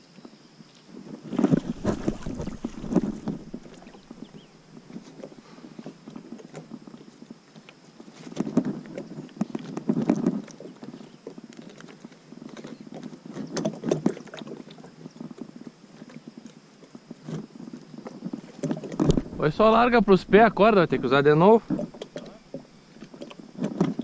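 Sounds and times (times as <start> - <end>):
rope rubbing on plastic hull: 1.3 - 5.4.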